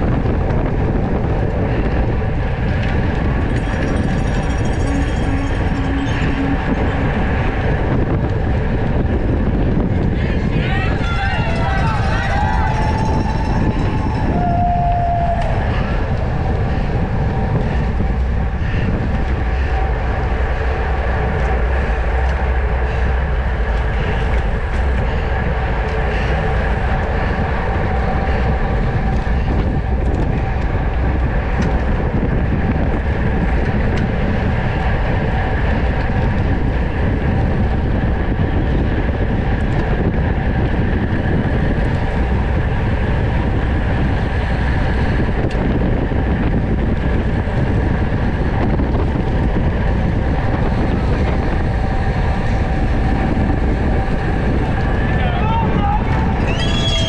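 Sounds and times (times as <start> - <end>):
hum of bike tyres and drivetrain: 0.0 - 57.0
wind on camera microphone: 0.0 - 57.0
short squeal: 56.5 - 57.0.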